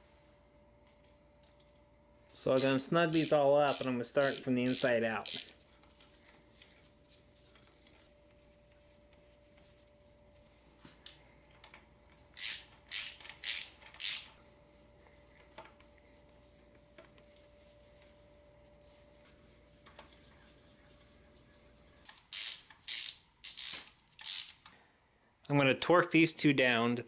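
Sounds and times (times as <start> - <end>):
ratchet wrench clicking: 2.6 - 5.5, 12.4 - 14.3, 22.3 - 24.7.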